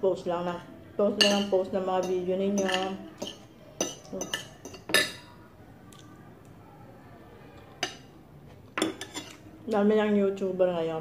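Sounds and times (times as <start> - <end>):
cutlery clinking on ceramic plate: 1.2 - 5.3, 8.8 - 9.4.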